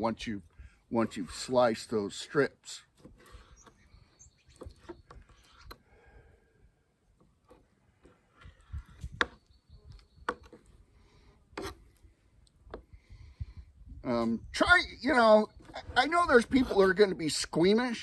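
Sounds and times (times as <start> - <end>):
knife scraping and tapping: 11.6 - 11.8.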